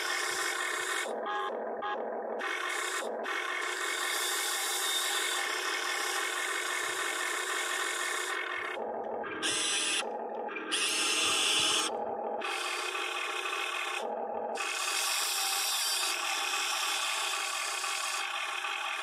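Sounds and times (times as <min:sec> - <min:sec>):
electric motors whining: 0:00.0 - 0:19.0.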